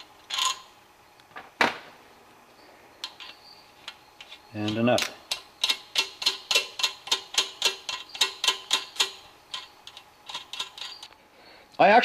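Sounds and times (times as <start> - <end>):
metallic clicks of spinning nut: 4.6 - 11.2.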